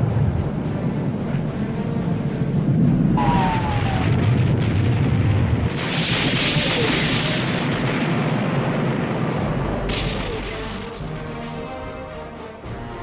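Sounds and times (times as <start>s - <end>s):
deep rumbling explosion: 2.6s - 11.4s.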